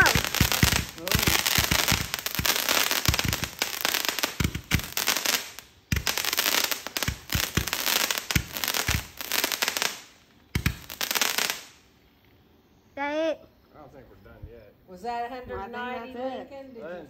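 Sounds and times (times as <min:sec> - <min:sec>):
fireworks launch pops: 0:00.0 - 0:11.9
fireworks crackling: 0:00.0 - 0:12.1.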